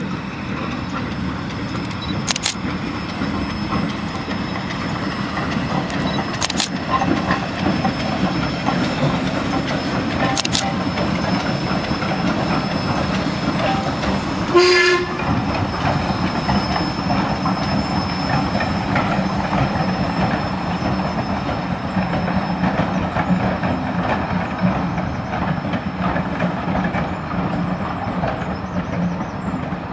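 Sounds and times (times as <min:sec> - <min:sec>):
steam train running past: 0:00.0 - 0:29.9
steam locomotive whistle: 0:13.6 - 0:15.3.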